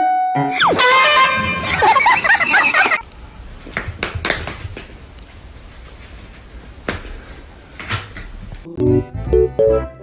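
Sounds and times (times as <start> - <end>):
loud music with warbling notes: 0.5 - 3.0.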